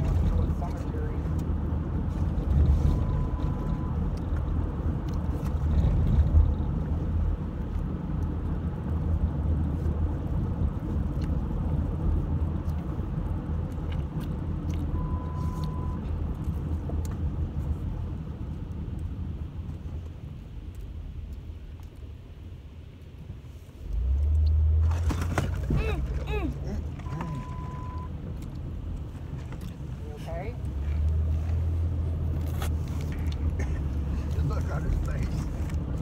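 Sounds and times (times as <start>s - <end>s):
car engine and road noise: 0.0s - 36.0s
short faint beeps: 14.9s - 16.0s, 27.0s - 28.1s.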